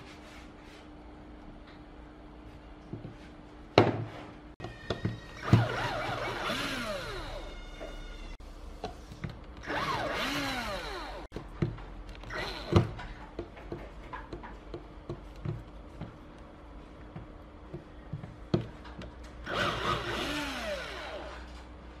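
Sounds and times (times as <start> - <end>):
cordless drill motor: 4.9 - 8.0, 9.6 - 11.3, 12.1 - 13.1, 19.4 - 21.6
drill clicks: 9.5 - 11.4, 12.1 - 13.1.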